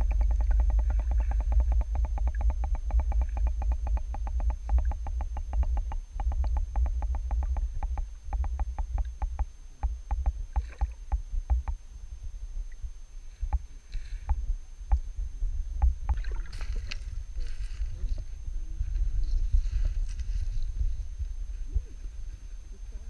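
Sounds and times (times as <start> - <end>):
sharp clicks underwater: 0.0 - 11.8, 15.8 - 17.0
underwater river rumble: 0.0 - 23.0.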